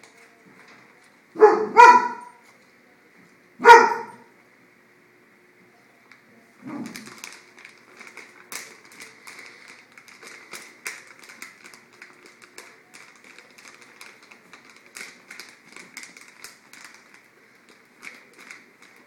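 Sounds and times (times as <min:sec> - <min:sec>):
dog crunching pretzels: 0:06.6 - 0:19.0
plastic bag crinkling: 0:06.6 - 0:19.0.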